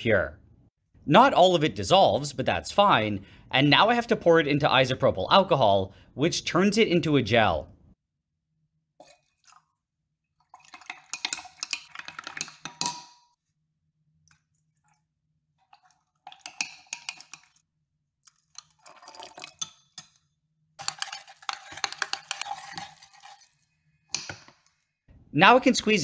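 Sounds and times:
rod stirring in glass beaker: 0:09.0 - 0:09.8, 0:10.4 - 0:13.0, 0:14.3 - 0:20.2, 0:20.8 - 0:24.4.

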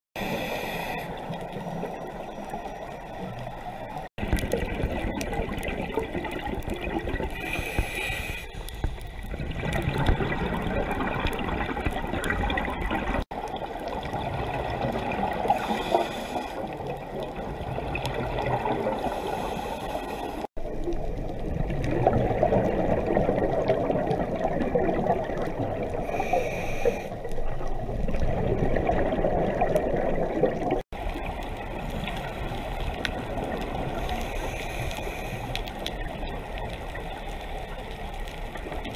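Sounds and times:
underwater rush of water: 0:00.2 - 0:38.9
bubbling underwater: 0:01.4 - 0:07.6, 0:09.1 - 0:16.0, 0:16.6 - 0:19.2, 0:20.5 - 0:26.2, 0:27.3 - 0:34.1.

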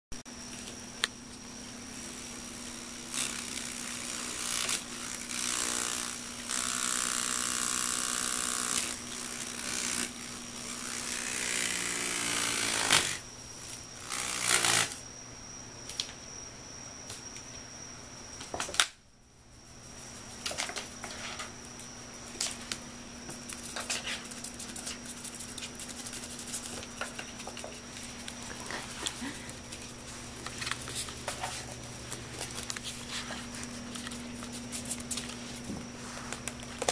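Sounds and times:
electric fan humming: 0:00.3 - 0:36.9
feather fluttering in fan blades: 0:19.8 - 0:36.9.

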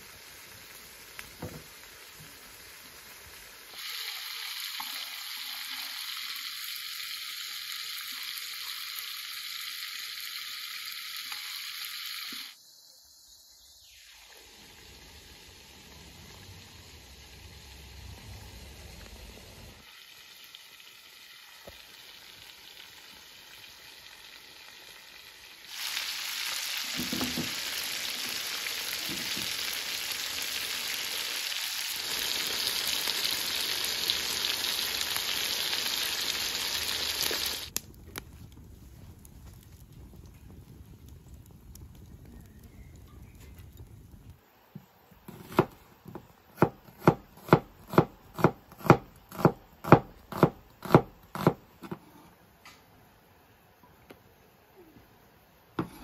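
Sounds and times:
chicken sizzling in hot oil: 0:00.0 - 0:39.1
knife chopping on wooden board: 0:45.3 - 0:52.1, 0:55.8 - 0:56.0.

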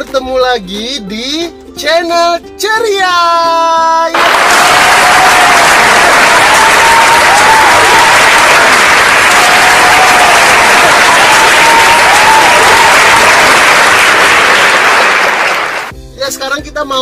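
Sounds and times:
crowd cheering: 0:04.1 - 0:15.9
crowd clapping: 0:04.1 - 0:15.9.

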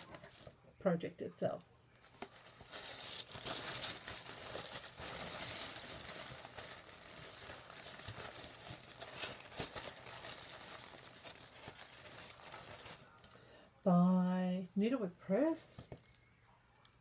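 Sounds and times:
paper rustling: 0:02.0 - 0:13.3.

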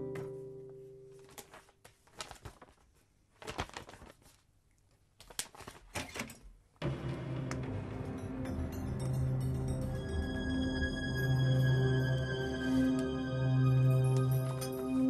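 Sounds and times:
paper rustling and pages turning: 0:01.1 - 0:06.3
music cue: 0:06.8 - 0:15.0.

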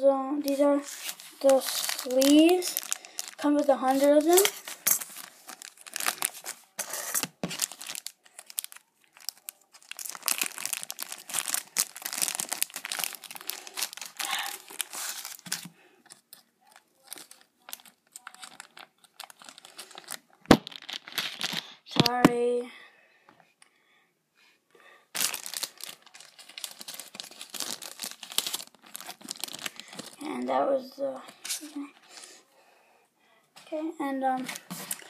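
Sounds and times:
plastic wrapping crinkling and tearing: 0:00.4 - 0:22.2, 0:25.1 - 0:30.4, 0:34.3 - 0:35.0.

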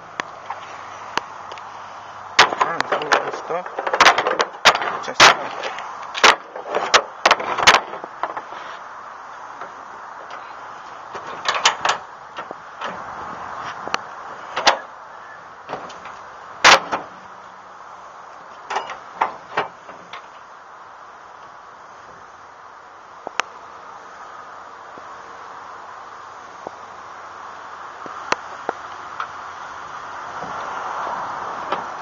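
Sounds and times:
metal knocks and clunks: 0:02.4 - 0:08.5, 0:11.1 - 0:13.1, 0:15.7 - 0:17.2, 0:18.7 - 0:20.3.

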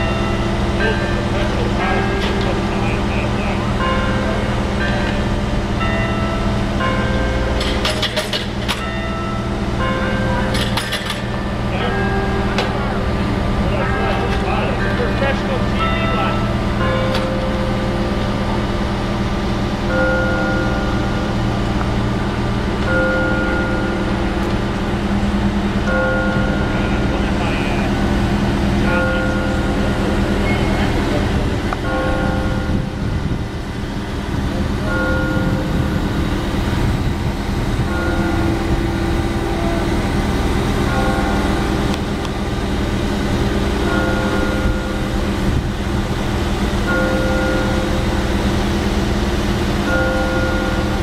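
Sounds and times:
crane engine running: 0:00.0 - 0:51.0
high machine whine: 0:00.0 - 0:51.0
steady high tone: 0:00.0 - 0:51.0.

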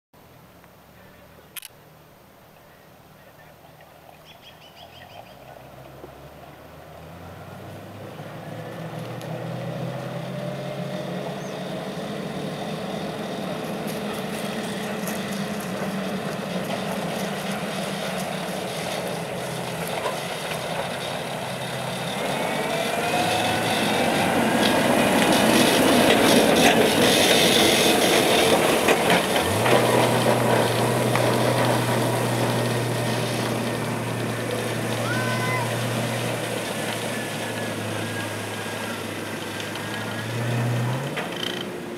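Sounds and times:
tracked vehicle engine: 0:00.2 - 0:41.9
tracks rattling: 0:10.3 - 0:41.9.

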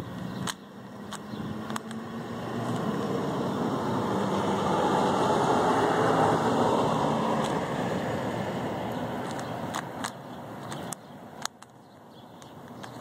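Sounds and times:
low engine hum: 0:00.0 - 0:11.0
vehicle driving past: 0:00.8 - 0:09.2.

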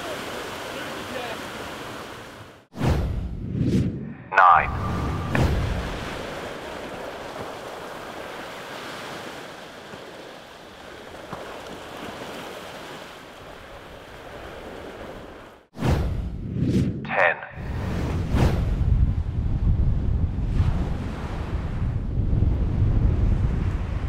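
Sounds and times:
ocean surf: 0:00.0 - 0:02.7, 0:04.3 - 0:15.7
wind on microphone: 0:16.1 - 0:24.0.

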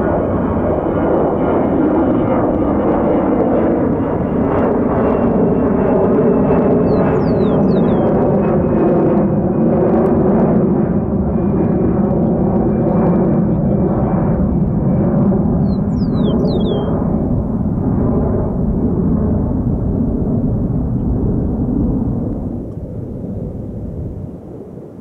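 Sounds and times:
jet engines rumbling: 0:00.0 - 0:25.0
bird chirping: 0:06.8 - 0:08.2, 0:15.6 - 0:17.0
high whine falling in pitch: 0:06.8 - 0:08.2, 0:15.6 - 0:17.0.

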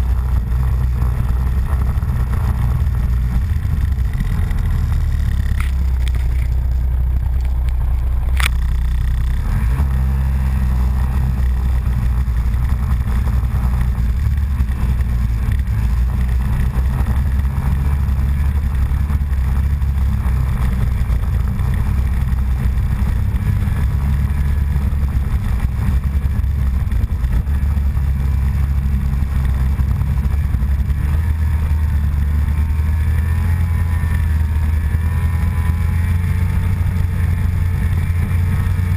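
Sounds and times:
snowmobile engine droning: 0:00.0 - 0:38.9
sharp click: 0:07.4 - 0:08.7.

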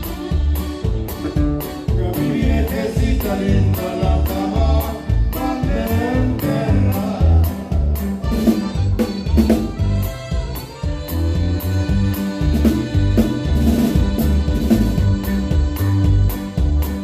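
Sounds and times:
bass and drums: 0:00.0 - 0:17.0
button accordion: 0:00.0 - 0:17.0
person singing: 0:01.8 - 0:08.0.

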